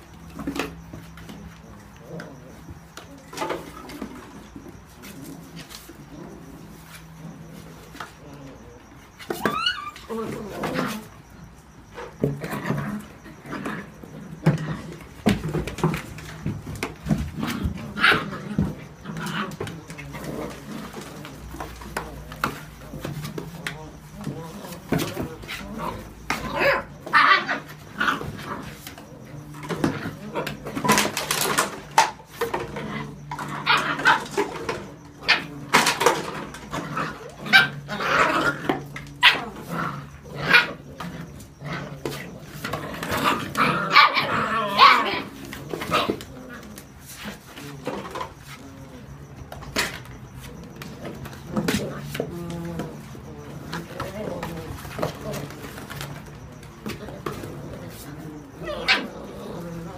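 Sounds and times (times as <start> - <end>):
puppies yapping and growling: 0.0 - 59.9
puppy yelps: 9.2 - 10.3, 58.6 - 59.2.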